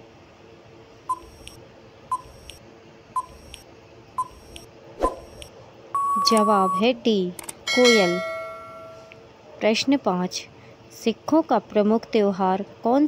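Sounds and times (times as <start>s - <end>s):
short timer beeps: 1.1s - 2.6s, 3.2s - 3.6s, 4.2s - 6.9s.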